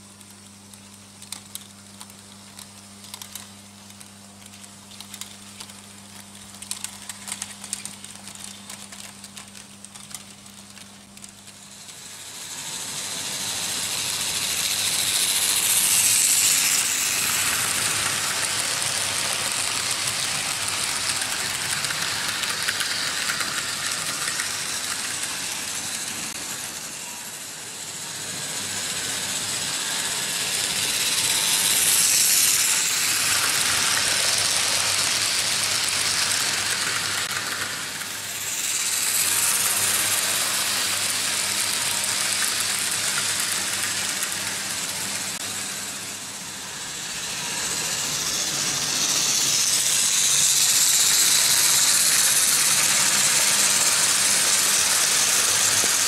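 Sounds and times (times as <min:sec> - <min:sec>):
model train rattle and motor whir: 0:00.0 - 0:56.0
wheels clicking over track: 0:13.5 - 0:26.4, 0:29.0 - 0:45.4.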